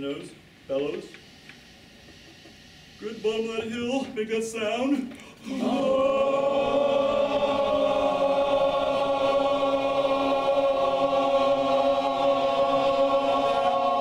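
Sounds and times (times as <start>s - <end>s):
men's chorus singing a long tone: 5.4s - 14.0s.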